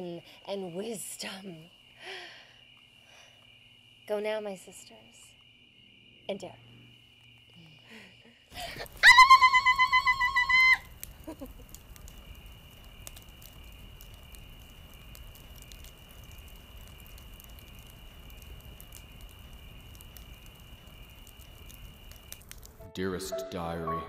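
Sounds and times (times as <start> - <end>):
crickets chirring: 0.0 - 23.8
campfire crackling: 6.9 - 23.2.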